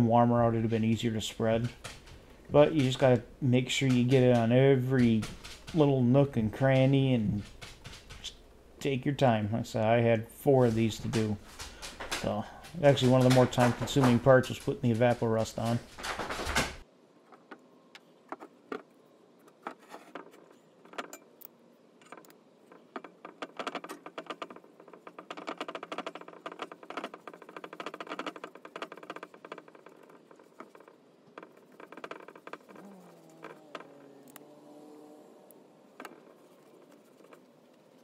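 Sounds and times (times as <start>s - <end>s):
bristle brush scrubbing metal: 0.2s - 8.5s, 10.4s - 15.9s, 23.1s - 34.4s, 35.8s - 38.0s.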